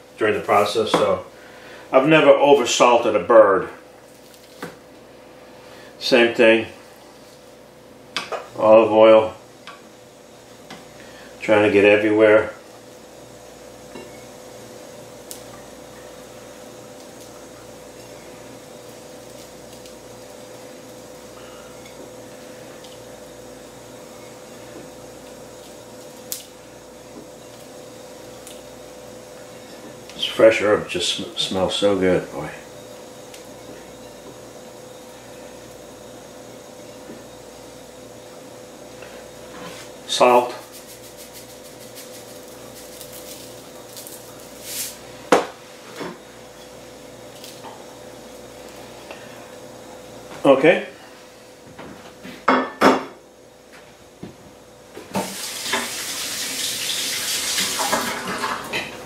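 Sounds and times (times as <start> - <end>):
room hum: 0.0 - 59.0
hands rubbing herbs onto chicken: 39.6 - 45.0.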